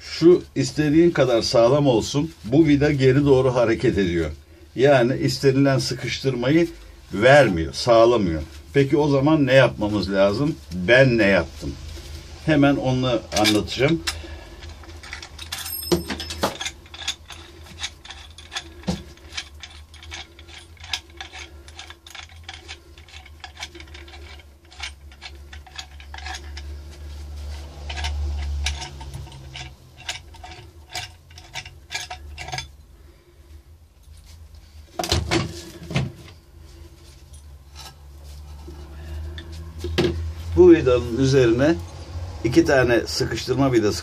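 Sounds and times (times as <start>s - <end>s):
metal fittings clinking: 13.2s - 32.9s.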